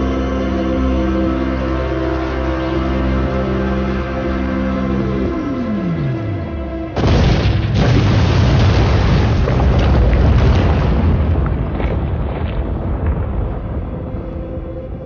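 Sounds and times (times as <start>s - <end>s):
deep rumble: 3.2s - 15.0s
explosion booms: 7.0s - 14.1s.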